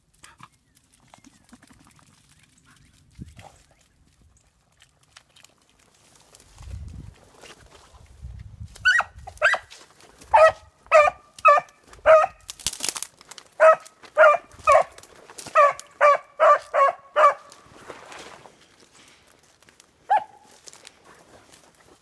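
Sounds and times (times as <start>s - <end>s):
rustle of brush: 2.1s - 10.3s, 17.4s - 22.0s
dog barking: 10.3s - 12.4s, 13.6s - 15.0s, 15.6s - 17.5s, 20.1s - 20.4s.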